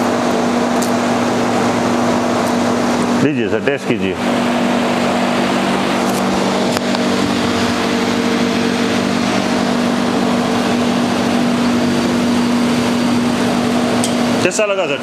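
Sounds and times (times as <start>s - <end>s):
machine hum with fan hiss: 0.0s - 15.0s.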